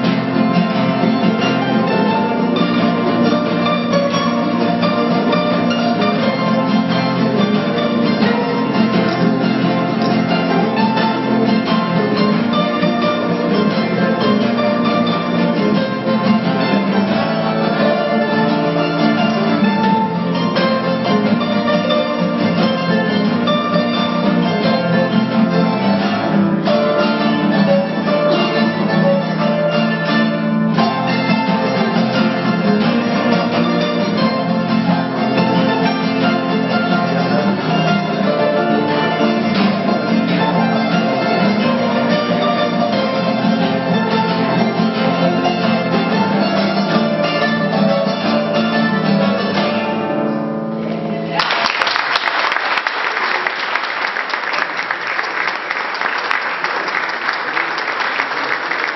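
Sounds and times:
folk trio playing a tune: 0:00.0 - 0:51.4
audience applauding: 0:51.3 - 0:58.9.

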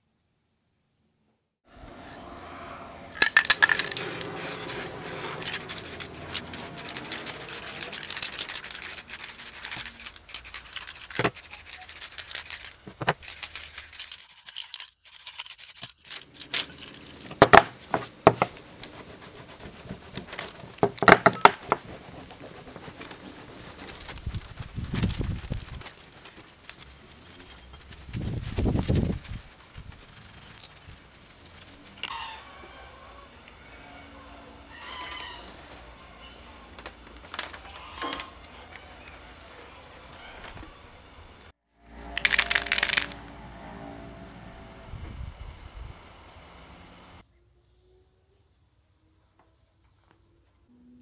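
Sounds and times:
cloth rubbing on sheet metal: 0:04.0 - 0:13.9, 0:16.8 - 0:32.0.

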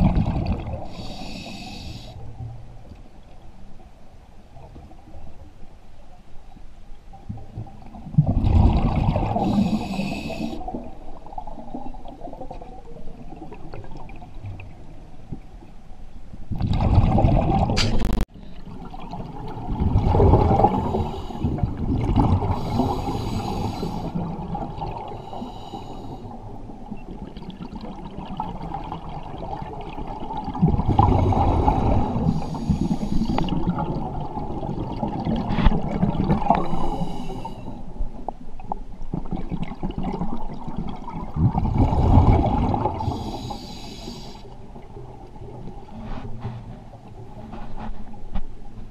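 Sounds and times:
underwater hum: 0:00.0 - 0:48.9
regulator inhalation hiss: 0:00.9 - 0:02.2, 0:09.4 - 0:10.6, 0:20.7 - 0:21.6, 0:22.6 - 0:24.2, 0:25.2 - 0:26.3, 0:32.2 - 0:33.6, 0:36.6 - 0:37.7, 0:43.0 - 0:44.6.

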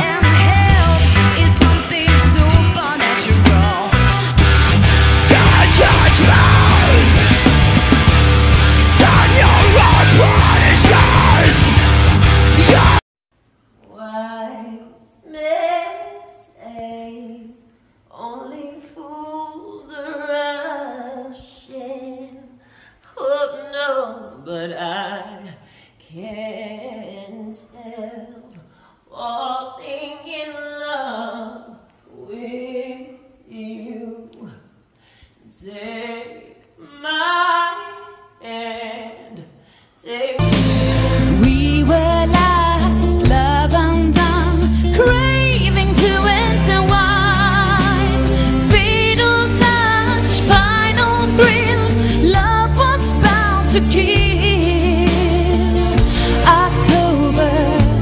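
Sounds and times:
woman singing unaccompanied: 0:00.0 - 0:04.2, 0:13.8 - 0:22.5, 0:23.2 - 0:34.6, 0:35.5 - 0:55.8, 0:56.4 - 0:58.0.

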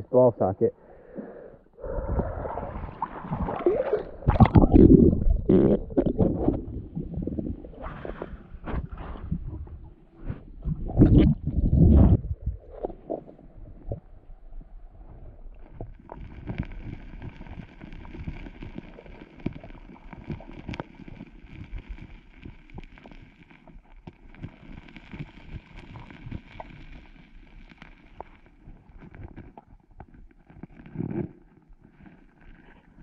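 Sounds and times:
underwater stones knocking: 0:02.2 - 0:09.8.

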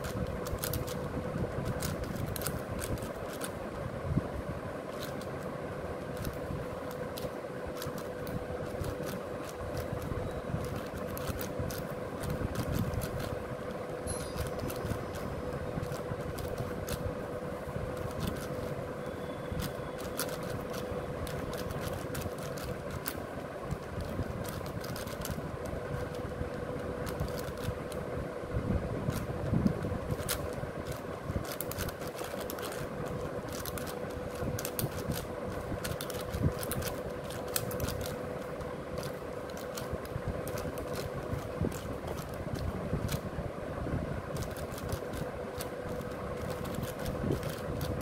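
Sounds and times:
puzzle cube clicking and scraping: 0:00.0 - 0:03.7, 0:04.9 - 0:17.2, 0:17.8 - 0:28.0, 0:29.0 - 0:43.3, 0:44.3 - 0:48.0
steady hum: 0:00.0 - 0:48.0.

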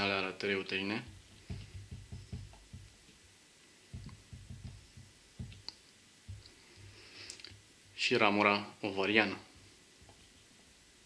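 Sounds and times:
marker tip tapping on paper: 0:01.1 - 0:02.9, 0:03.9 - 0:05.7.

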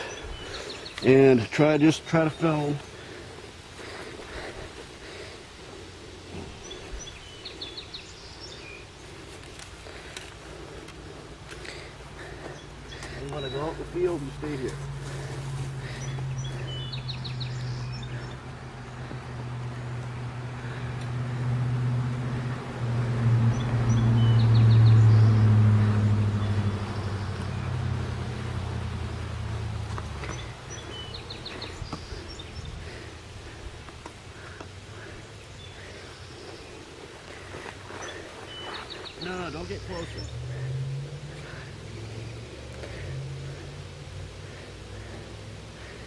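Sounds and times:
rural outdoor ambience: 0:00.0 - 0:46.0
vehicle engine passing by: 0:11.3 - 0:33.6, 0:37.3 - 0:46.0.

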